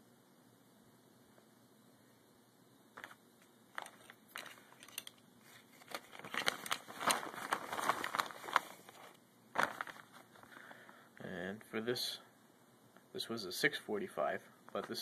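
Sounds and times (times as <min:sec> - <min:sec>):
plastic bag crinkling: 0:03.0 - 0:10.7.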